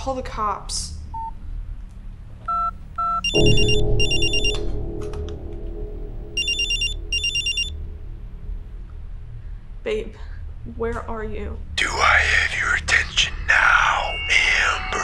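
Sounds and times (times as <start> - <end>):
cordless phone keypad beeps: 2.5 - 4.6, 6.4 - 7.7
deep music hit: 2.7 - 11.8
smartphone ringtone of high trills: 3.0 - 4.8, 6.4 - 7.8.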